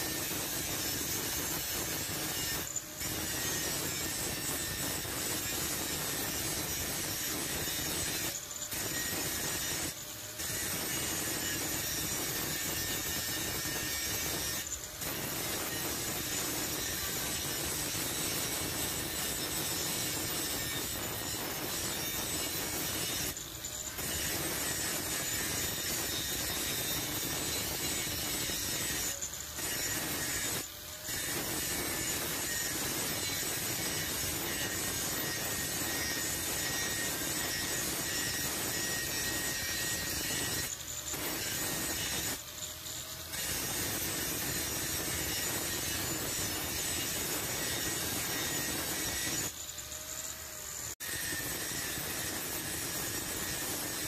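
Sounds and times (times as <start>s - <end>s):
angle grinder cutting steel: 0.0s - 54.0s.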